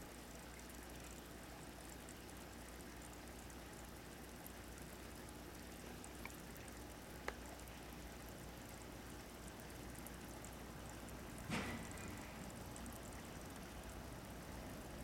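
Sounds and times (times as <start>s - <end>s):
aquarium filter humming: 0.0s - 15.0s
faint water trickling: 0.0s - 15.0s
small clicks: 7.2s - 7.4s.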